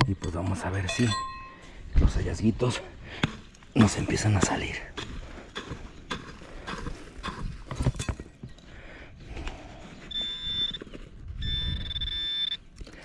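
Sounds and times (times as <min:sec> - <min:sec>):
metal detector tone: 0:00.9 - 0:01.6, 0:10.0 - 0:12.6.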